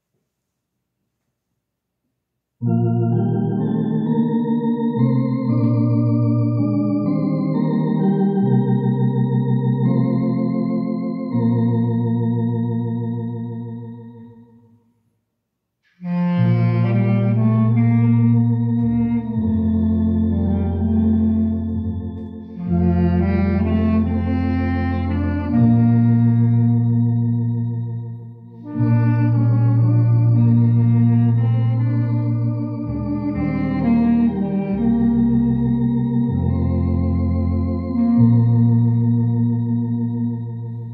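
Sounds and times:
electronic organ playing chords: 2.6 - 14.7, 15.8 - 40.9
clarinet: 15.8 - 40.9.

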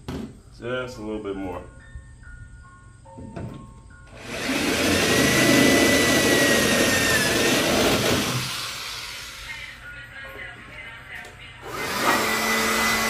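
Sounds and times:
power drill boring through steel: 4.1 - 9.8, 11.6 - 13.0.

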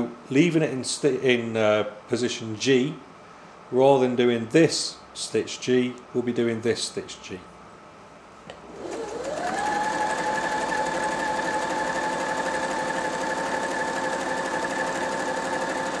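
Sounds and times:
sewing machine motor whine: 8.7 - 16.0.

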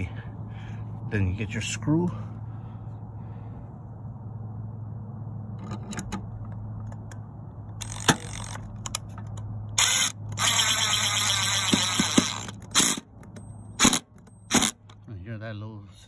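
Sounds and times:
cordless drill driving screw: 7.8 - 8.6, 9.8 - 13.0, 13.8 - 14.8
drill clicks: 7.8 - 9.1, 9.8 - 15.0.

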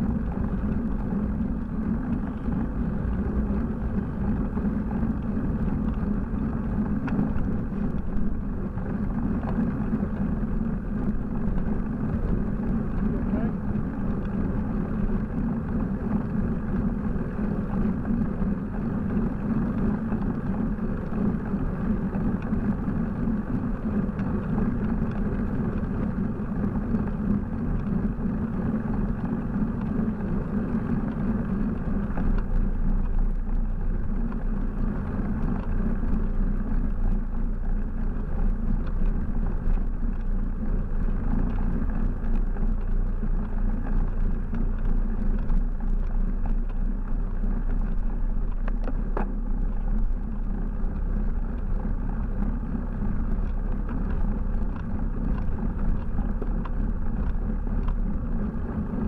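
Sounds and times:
road rumble: 0.0 - 59.0.

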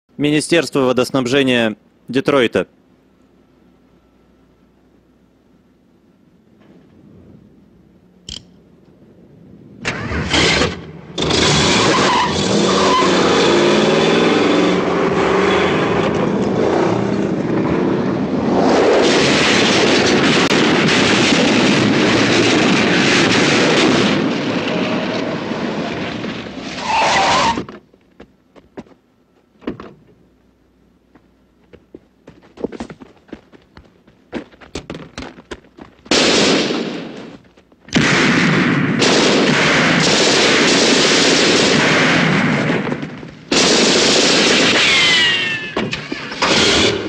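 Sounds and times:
tyres skidding on dirt: 9.8 - 27.8
car engine revving hard: 11.2 - 17.1
tyre squeal: 11.4 - 13.6, 26.7 - 27.7, 44.8 - 47.0.

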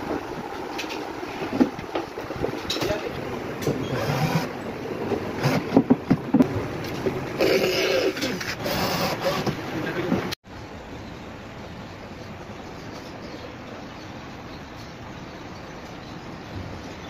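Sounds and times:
workshop machine noise: 0.0 - 10.4
cordless drill driving screws: 3.9 - 4.5, 8.0 - 9.6.

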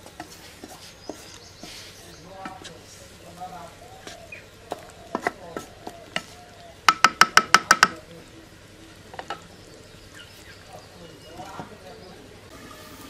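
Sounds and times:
wooden spatula tapping metal pot: 0.0 - 8.1, 9.1 - 9.6.

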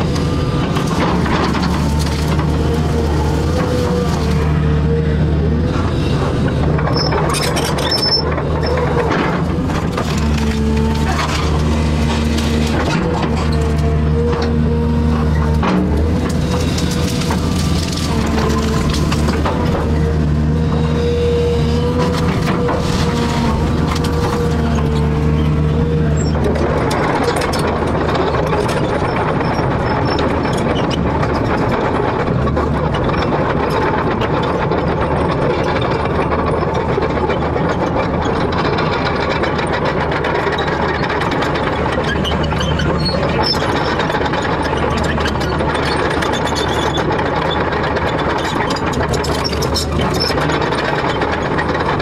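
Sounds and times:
excavator diesel engine running: 0.0 - 52.0.

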